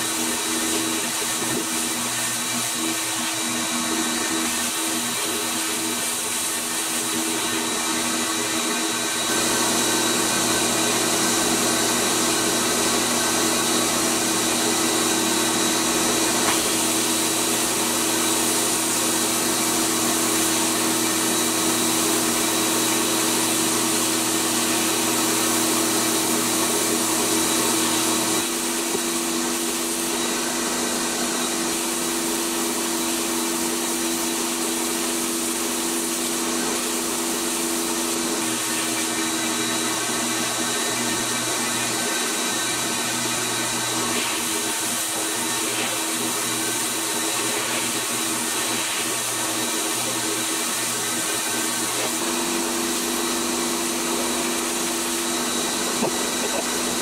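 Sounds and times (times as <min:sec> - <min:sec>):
sandblasting gun hissing: 0:14.9 - 0:26.3, 0:28.4 - 0:39.9, 0:42.1 - 0:57.0.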